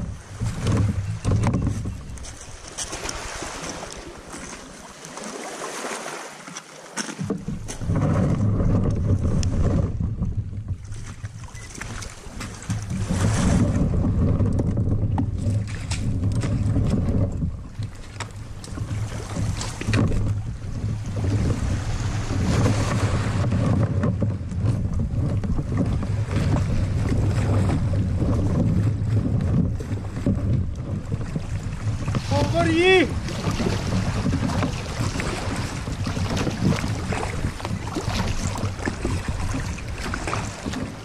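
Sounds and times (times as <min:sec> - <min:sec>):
wind rumble on microphone: 0:00.0 - 0:04.8, 0:07.2 - 0:41.0
surf washing over cobbles: 0:31.9 - 0:39.4.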